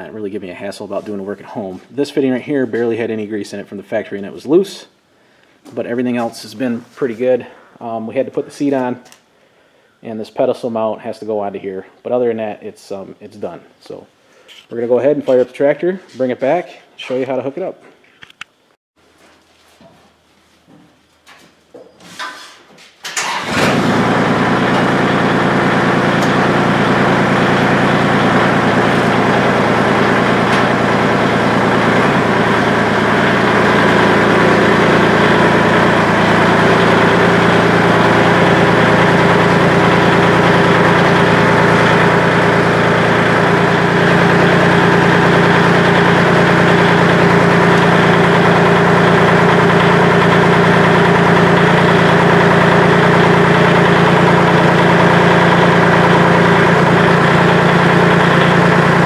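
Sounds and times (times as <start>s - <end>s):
tractor diesel engine running: 23.2s - 59.0s.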